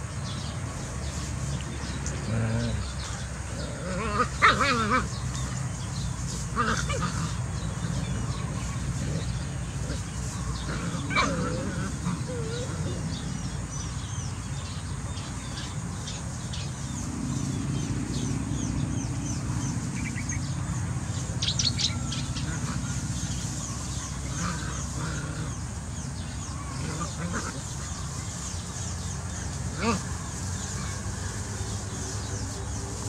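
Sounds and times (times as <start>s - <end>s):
small birds chirping: 0.0s - 33.0s
steady low rumble: 15.0s - 27.5s.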